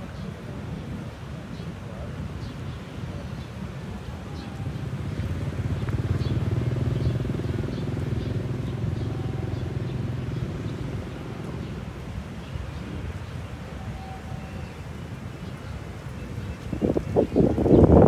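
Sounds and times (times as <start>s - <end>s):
vehicle engine passing by: 4.6s - 12.2s.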